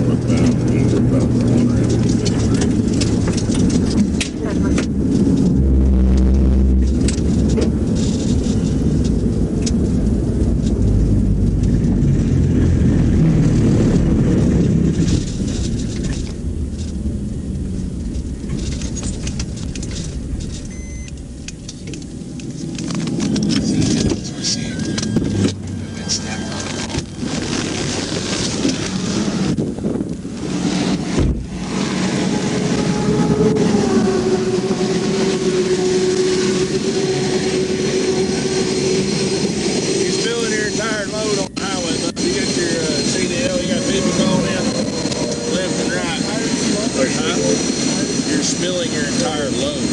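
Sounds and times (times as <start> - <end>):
road and tyre rumble inside car: 0.0 - 34.8
heavy truck droning: 0.0 - 49.9
highway traffic passing: 0.0 - 49.9
wind rushing over microphone: 0.0 - 49.9
low thump: 31.1 - 31.6.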